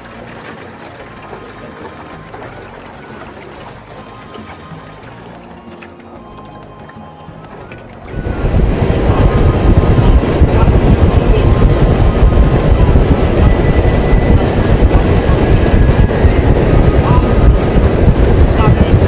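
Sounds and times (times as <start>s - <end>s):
outboard engine running: 0.0s - 19.0s
wind buffeting microphone: 7.9s - 19.0s.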